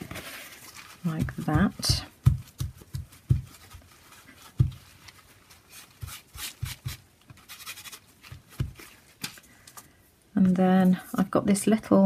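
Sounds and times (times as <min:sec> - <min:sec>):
paper rustling and rubbing: 0:00.0 - 0:09.4.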